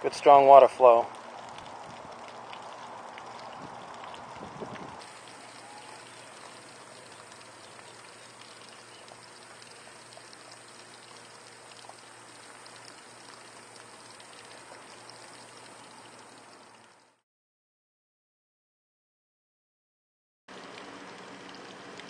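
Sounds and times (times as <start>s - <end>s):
water splashing onto gravel: 0.2s - 16.6s.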